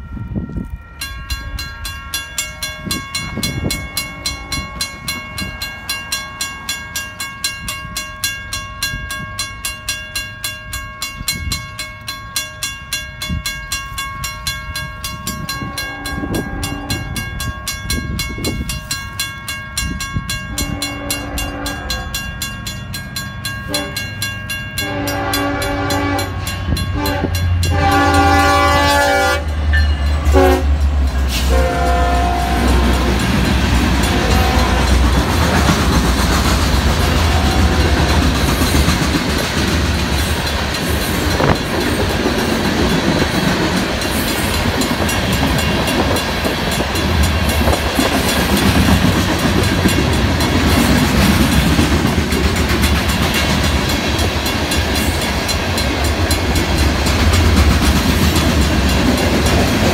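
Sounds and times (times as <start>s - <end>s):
crossing bell ringing: 0.0s - 59.9s
locomotive horn blasts: 4.1s - 5.1s, 15.6s - 17.2s, 20.5s - 22.3s, 23.7s - 24.1s, 24.8s - 29.6s, 30.2s - 35.8s, 37.0s - 38.4s
locomotive engine rumble: 24.8s - 59.9s.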